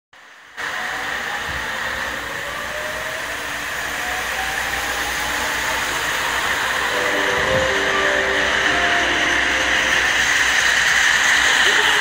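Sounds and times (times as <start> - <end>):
railcar diesel engine droning: 0.2 - 12.0.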